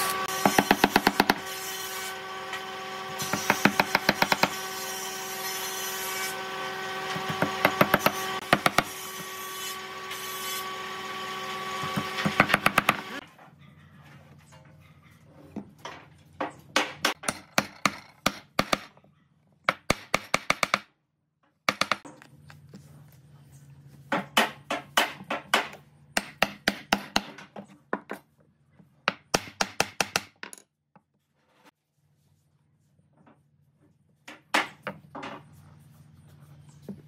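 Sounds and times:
hammer striking nails into wood: 0.4s - 1.5s, 3.2s - 4.6s, 7.2s - 8.9s, 16.8s - 18.9s, 19.7s - 20.9s, 21.7s - 22.0s, 24.3s - 27.5s, 29.1s - 30.4s.

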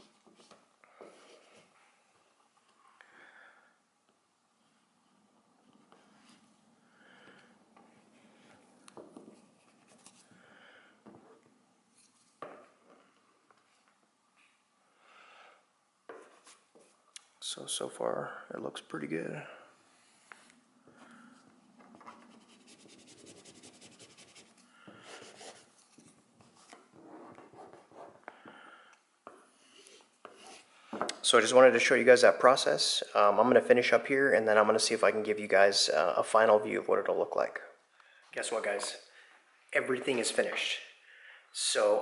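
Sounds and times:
soft breaths: 4.5s - 17.0s, 19.4s - 22.6s, 24.4s - 26.2s, 28.1s - 31.1s, 40.9s - 41.6s.

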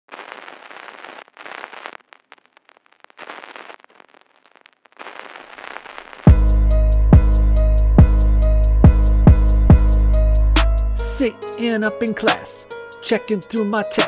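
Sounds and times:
crackling noise with clicks: 0.1s - 6.3s
hip-hop beat with heavy bass: 6.3s - 14.0s.

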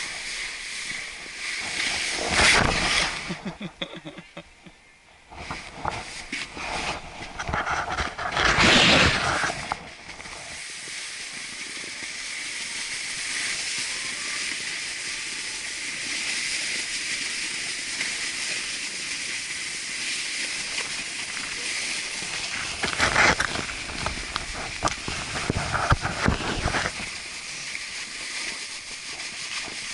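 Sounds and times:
rough scraping on snow: 0.0s - 4.0s, 5.3s - 29.9s
snowboard hissing over snow: 0.0s - 4.4s, 5.4s - 29.9s
rustling of movement: 5.3s - 10.7s, 17.2s - 29.9s.

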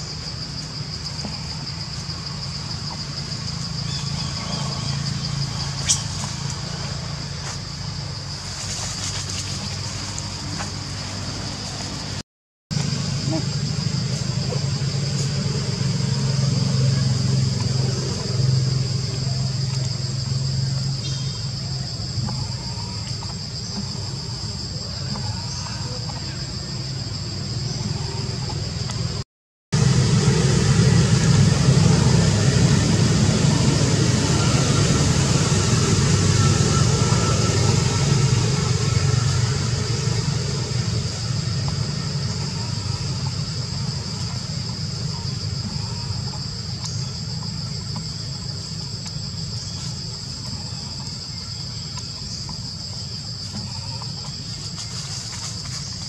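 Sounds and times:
low rumble: 29.8s - 51.2s
high-pitched insect drone: 29.8s - 56.0s.

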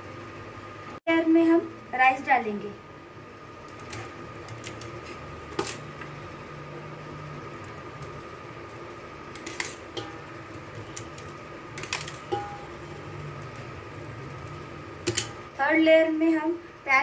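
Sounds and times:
faint constant whine: 0.0s - 17.0s
steady background hum: 0.0s - 17.0s
metal spoon clinking against pot: 9.4s - 10.3s, 11.8s - 12.8s, 15.0s - 15.4s.

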